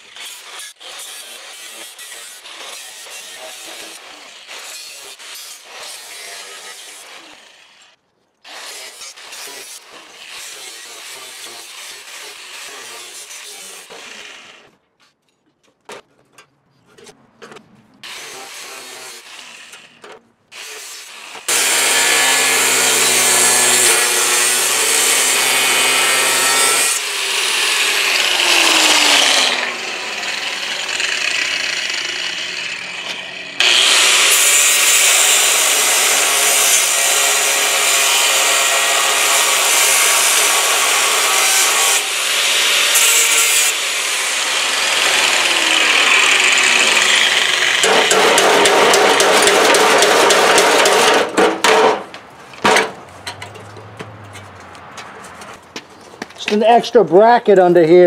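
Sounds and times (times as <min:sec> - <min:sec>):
cutoff wheel grinding steel: 0:17.0 - 0:55.6.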